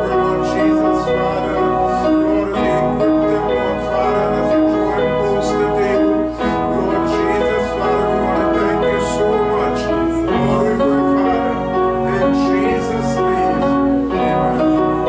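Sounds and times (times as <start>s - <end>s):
keyboard music with held notes: 0.0s - 15.0s.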